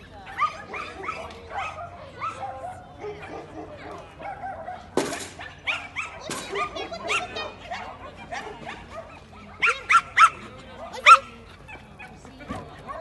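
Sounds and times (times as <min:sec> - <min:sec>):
dog barking: 0:00.3 - 0:13.0.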